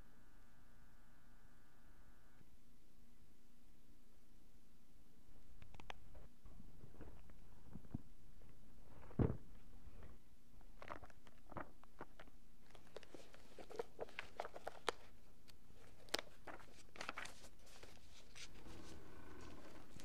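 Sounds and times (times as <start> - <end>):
room hum: 0.0 - 20.0
book pages turning: 10.6 - 20.0.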